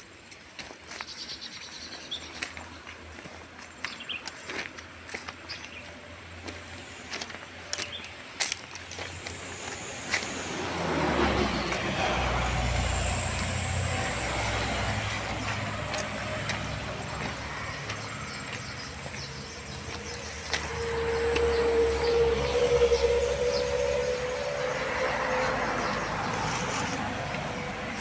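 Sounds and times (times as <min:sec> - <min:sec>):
vehicle engine rumble: 0:00.0 - 0:28.0.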